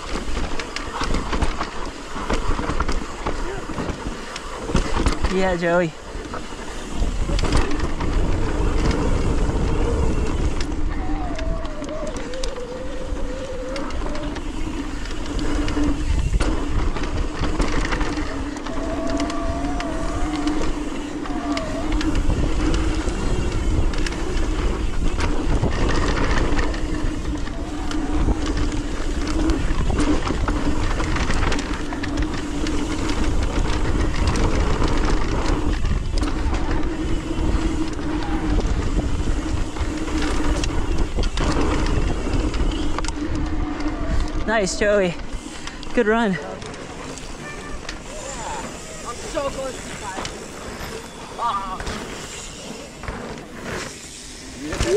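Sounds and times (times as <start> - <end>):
wind rushing over microphone: 0.0 - 50.6
tyres rolling on dirt: 0.0 - 54.9.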